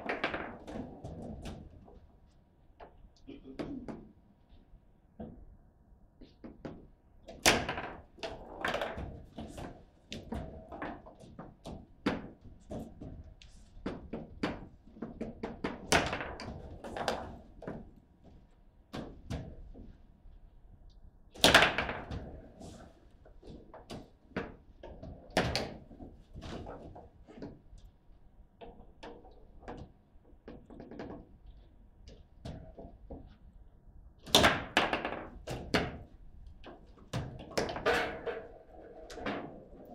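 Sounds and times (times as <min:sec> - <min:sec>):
table football knocks: 0:13.9 - 0:17.9, 0:34.2 - 0:36.1.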